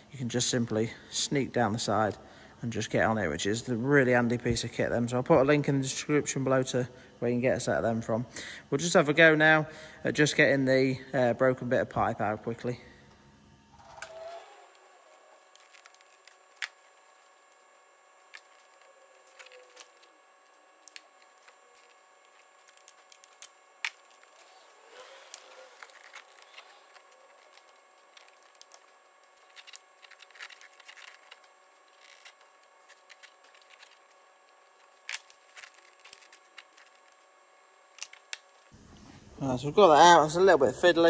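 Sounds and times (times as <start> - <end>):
faint steady hum: 0.0 - 41.0
hand tools clicking and scraping: 20.8 - 34.2.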